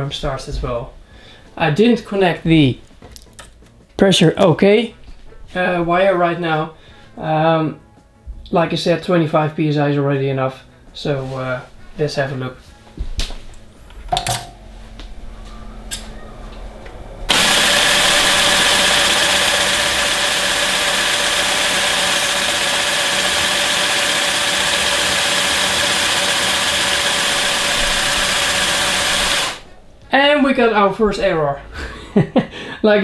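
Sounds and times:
air compressor hissing and humming: 17.3s - 29.7s.

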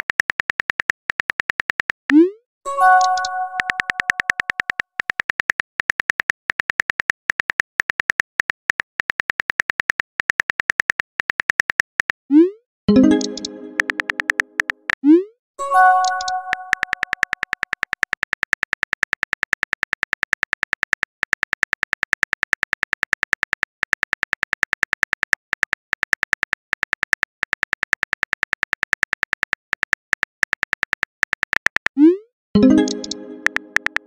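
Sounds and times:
keyboard typing clicks: 0.0s - 15.1s, 15.8s - 32.0s, 32.6s - 34.0s
message-sent chime: 2.7s - 4.1s, 12.9s - 14.3s, 15.6s - 17.0s, 32.6s - 33.8s.

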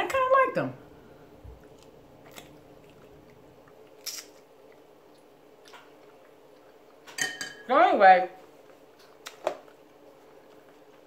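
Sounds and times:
person chewing food: 1.5s - 7.1s, 8.5s - 11.0s
mouth clicks and smacks: 9.0s - 9.8s.

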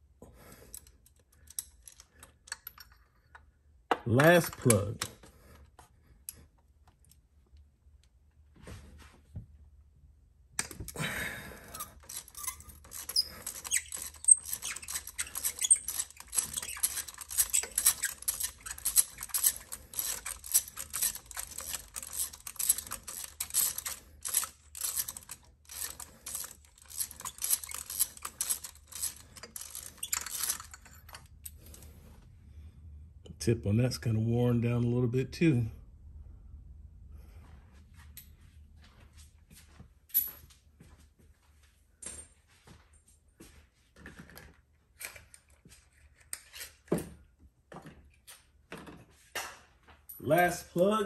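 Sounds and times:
socket ratchet clicking: 11.7s - 31.2s.

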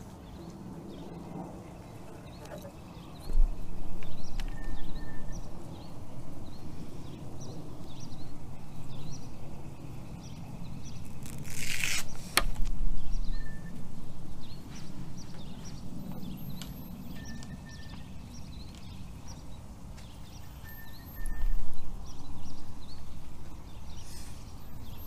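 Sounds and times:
birds chirping: 0.0s - 12.4s, 13.0s - 25.0s.

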